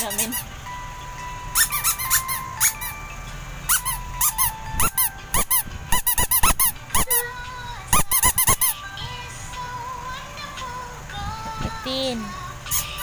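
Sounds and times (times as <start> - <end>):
squeaky toy squeaking: 0.0 - 0.6, 1.2 - 7.3, 7.9 - 8.8.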